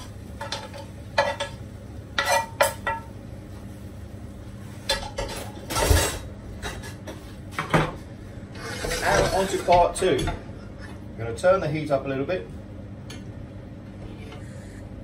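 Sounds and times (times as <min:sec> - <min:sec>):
pans clattering: 0:00.0 - 0:01.6, 0:02.2 - 0:03.1, 0:04.8 - 0:08.0, 0:08.6 - 0:10.5
cookware scraping a china plate: 0:08.6 - 0:09.8.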